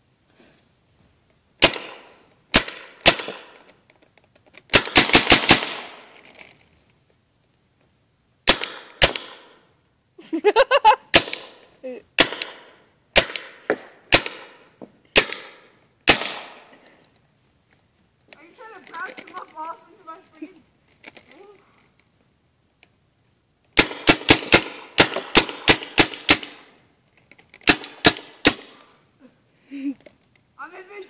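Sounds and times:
paintball marker firing: 1.6s - 3.7s, 4.7s - 6.1s, 8.5s - 9.6s, 11.1s - 11.6s, 12.2s - 16.7s, 23.8s - 26.8s, 27.6s - 28.9s.

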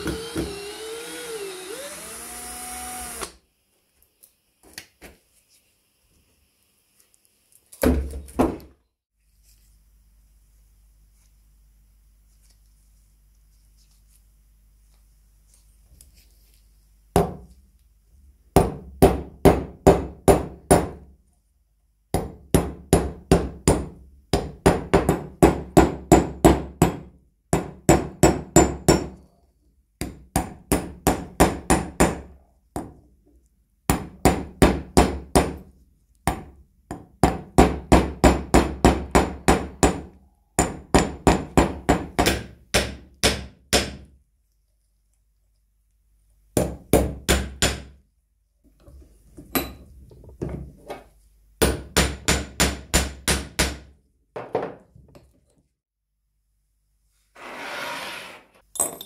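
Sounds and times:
hammer striking nails on anvil: 22.2s - 29.2s, 36.3s - 44.1s, 46.6s - 47.9s, 51.6s - 53.9s.

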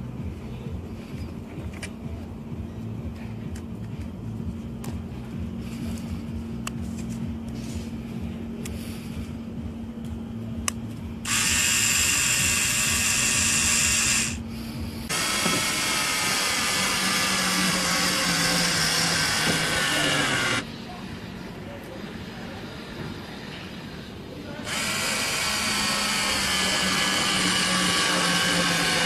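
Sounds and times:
low steady hum: 0.0s - 15.2s
cordless screwdriver motor whirring: 11.3s - 14.4s, 15.1s - 20.6s, 24.7s - 29.0s.

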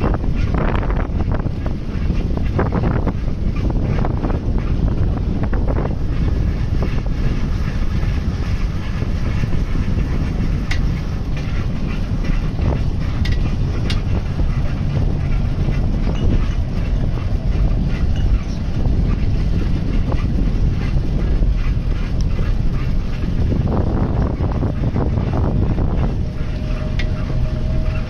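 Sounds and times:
road and tyre noise: 0.0s - 28.0s
wind buffeting microphone: 0.0s - 28.0s
bicycle clicks and rattles: 7.9s - 27.3s.

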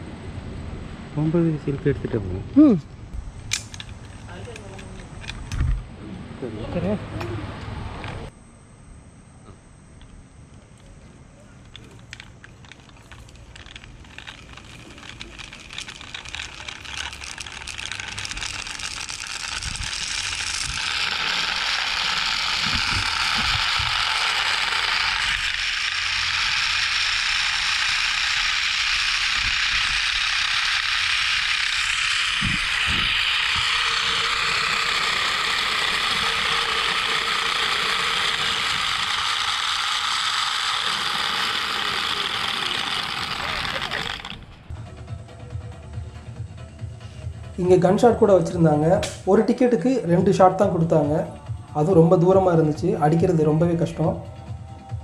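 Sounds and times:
zipline pulleys whirring: 3.5s - 5.7s, 6.6s - 8.4s, 10.6s - 45.0s.

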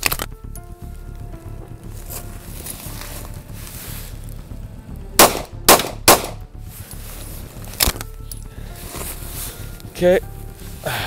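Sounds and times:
pistol shots: 5.2s - 6.4s.

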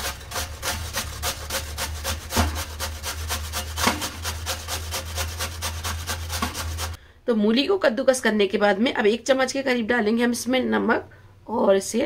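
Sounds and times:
radish rasping on a metal grater: 0.0s - 7.0s.

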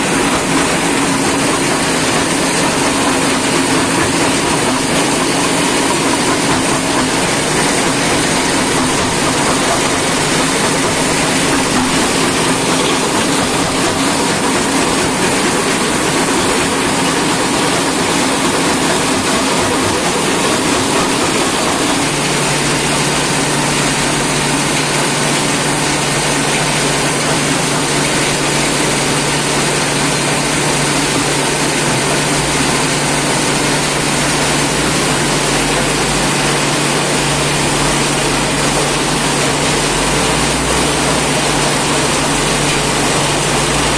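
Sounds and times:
conveyor belts running: 0.0s - 43.9s
stone crusher mechanical din: 0.0s - 43.9s.

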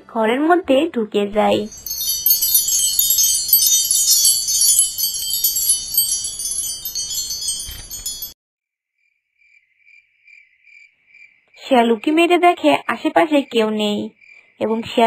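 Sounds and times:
wind chimes tinkling: 1.4s - 8.4s.

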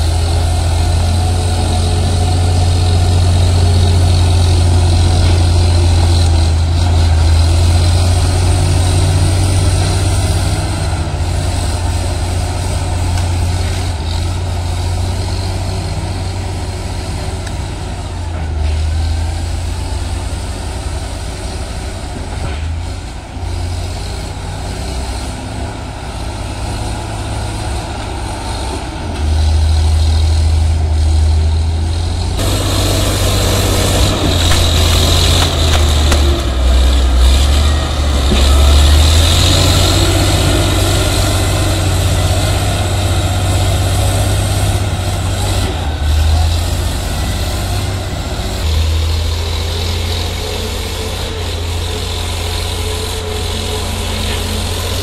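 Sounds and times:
bulldozer diesel engine: 0.0s - 55.0s.

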